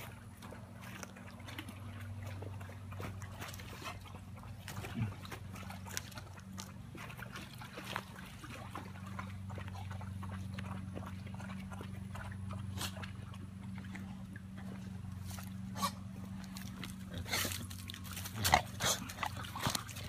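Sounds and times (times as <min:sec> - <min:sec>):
dogs lapping water: 0:00.0 - 0:20.0
low hum: 0:00.0 - 0:20.0.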